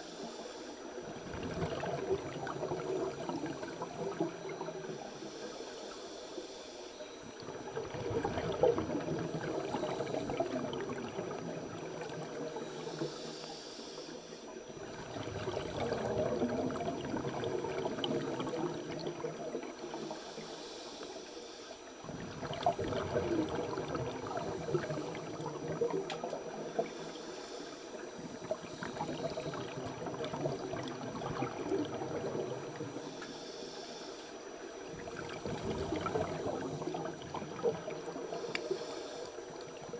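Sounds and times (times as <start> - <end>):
regulator hiss on inhalation: 0.0 - 1.1, 4.8 - 7.4, 9.2 - 10.5, 11.5 - 14.6, 19.8 - 22.0, 26.5 - 29.8, 32.8 - 34.6, 38.1 - 39.7
bubbling exhalation underwater: 7.7 - 12.4, 14.9 - 19.6, 22.1 - 26.6, 29.0 - 32.9.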